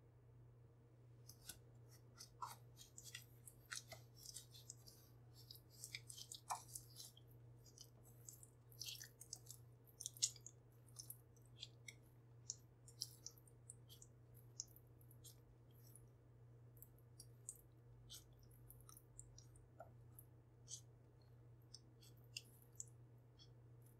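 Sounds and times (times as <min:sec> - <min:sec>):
spatula stirring in glass bowl: 0:01.3 - 0:16.0.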